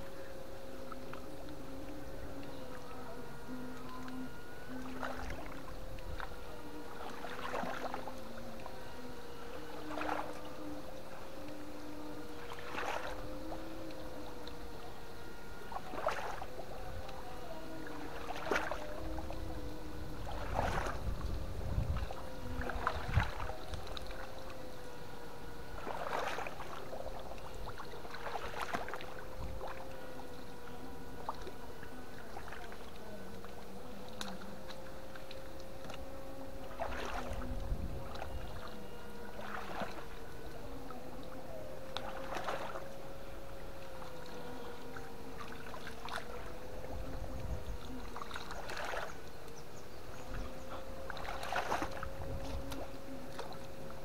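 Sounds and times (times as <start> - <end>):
steady wavering whine: 0.0 - 54.0
water splashing: 0.0 - 54.0.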